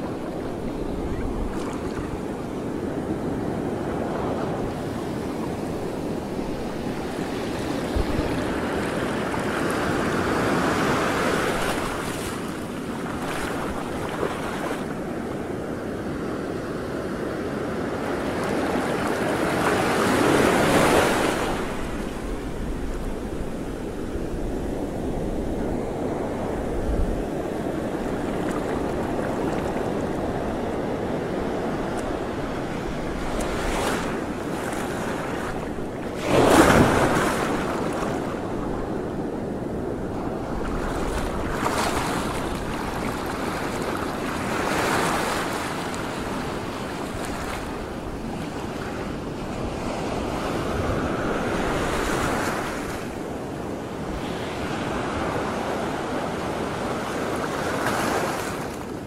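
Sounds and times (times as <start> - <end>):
wind buffeting microphone: 0.0 - 14.3
sea water washing and lapping: 0.1 - 2.5, 6.6 - 15.1, 26.1 - 38.8, 40.0 - 48.8.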